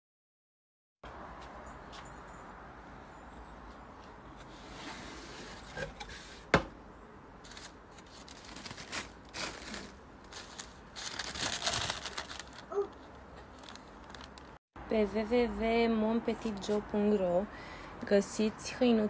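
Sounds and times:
tissue paper rustling: 7.4s - 14.6s.

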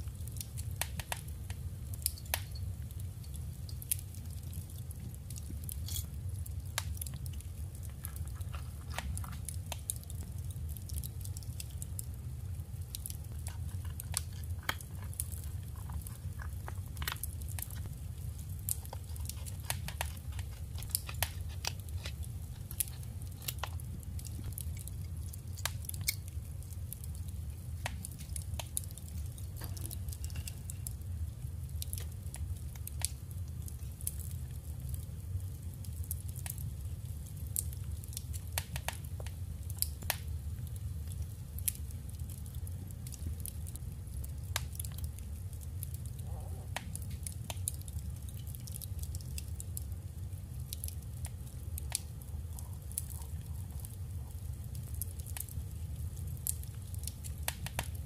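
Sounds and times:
paper clicks and crinkles: 7.8s - 9.9s, 13.2s - 24.6s, 27.8s - 31.0s.

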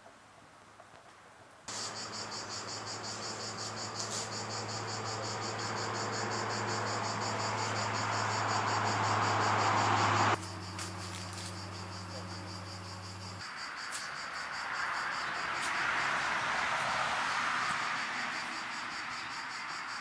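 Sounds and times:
hiss: 1.7s - 11.6s
insects chirping: 1.7s - 20.0s.

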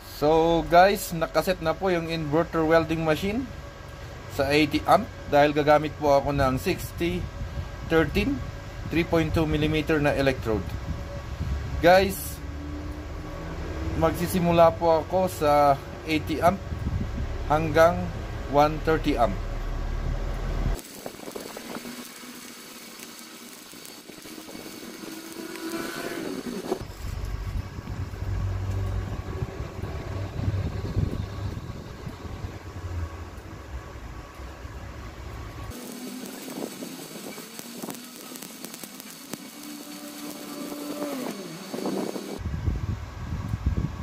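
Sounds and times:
welding arc crackling hiss: 9.0s - 16.6s, 20.7s - 29.0s, 35.5s - 42.4s
low rumble: 10.5s - 20.8s, 26.8s - 35.7s.

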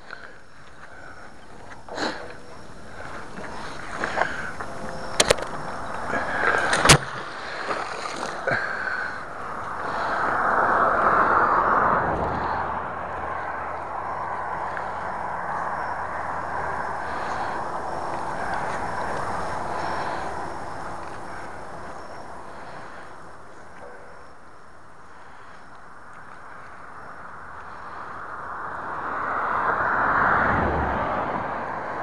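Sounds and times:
sharp clicks: 4.2s - 6.0s.

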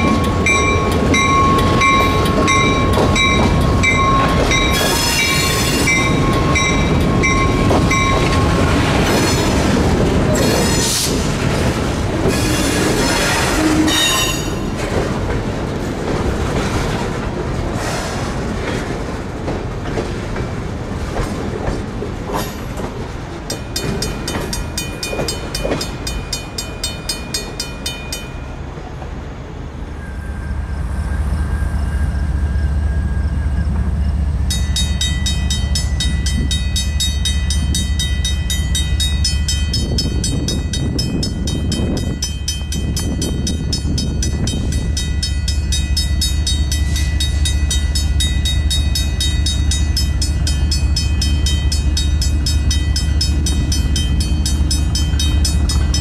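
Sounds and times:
second crossing bell ringing: 0.0s - 8.6s, 34.5s - 56.0s
railroad crossing bell ringing: 0.0s - 9.6s, 13.6s - 14.9s, 23.4s - 28.8s, 33.3s - 56.0s.

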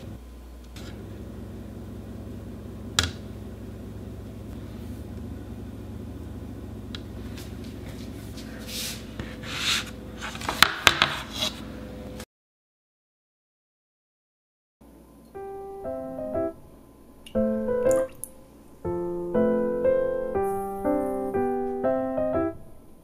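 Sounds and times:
low hum: 0.0s - 9.4s.

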